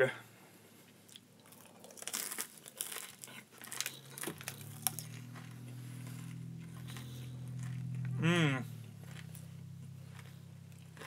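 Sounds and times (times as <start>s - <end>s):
low steady hum: 0.0s - 11.0s
crunching: 1.0s - 11.0s
plastic bag crinkling: 1.5s - 8.1s.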